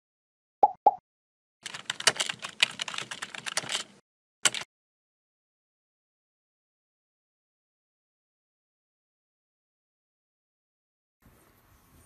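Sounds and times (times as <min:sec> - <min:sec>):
rapid keyboard clatter: 0:01.6 - 0:04.7.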